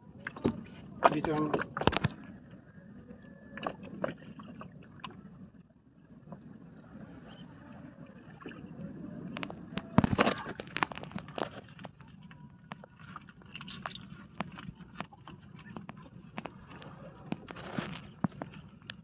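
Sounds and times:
water around boat: 0.0 - 19.0.

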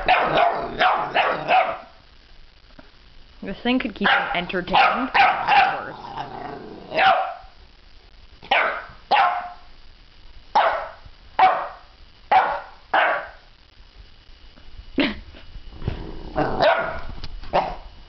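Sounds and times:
puppy growling: 0.0 - 1.8, 5.3 - 7.0, 15.8 - 17.8
puppy barking: 0.0 - 2.0, 4.0 - 6.0, 6.9 - 7.5, 8.4 - 9.7, 10.6 - 13.5, 16.6 - 17.9.

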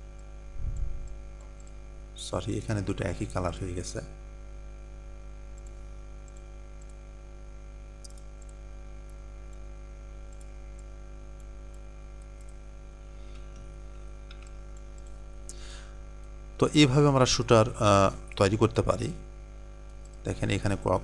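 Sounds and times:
electrical mains hum: 0.0 - 21.0
faint computer mouse clicks: 8.0 - 9.6, 10.3 - 12.6.

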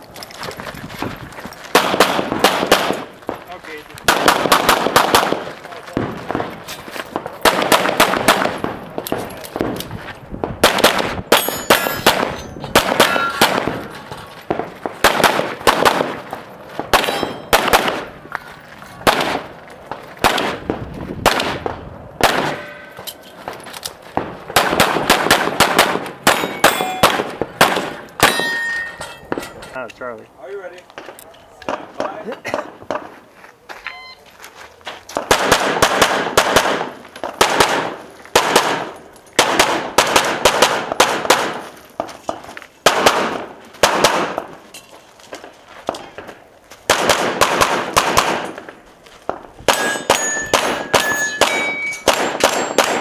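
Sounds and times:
pistol shots: 1.7 - 3.4, 4.0 - 9.9, 10.6 - 18.2, 19.0 - 19.5, 20.2 - 22.8, 24.2 - 28.6, 35.2 - 41.6, 42.8 - 44.5, 46.9 - 48.7, 49.6 - 53.0
metallic clang of steel targets: 11.3 - 13.5, 17.0 - 17.6, 22.5 - 23.4, 26.3 - 27.2, 28.2 - 29.9, 49.7 - 53.0.

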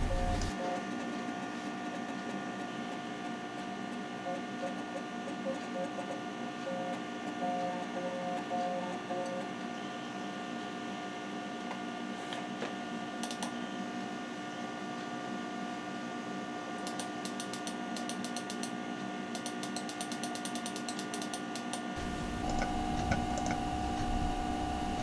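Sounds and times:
disk drive ticking: 0.0 - 9.7, 22.0 - 25.0
computer humming: 0.0 - 12.1, 21.9 - 25.0.

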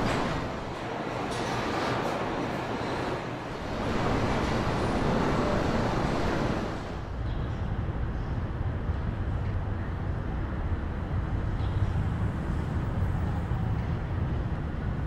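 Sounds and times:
machinery noise: 0.0 - 7.1.

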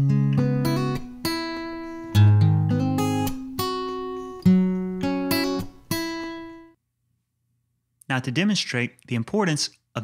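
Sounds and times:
acoustic guitar picked notes: 0.0 - 6.8.

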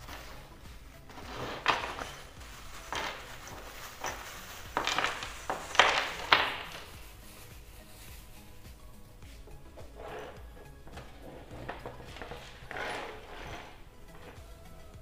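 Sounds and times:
metal screws clattering onto wood: 2.9 - 7.0, 9.8 - 14.4.

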